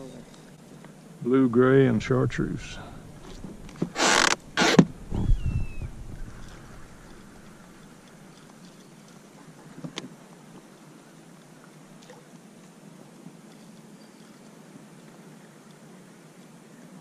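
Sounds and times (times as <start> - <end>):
boat motor humming: 1.9 - 9.8.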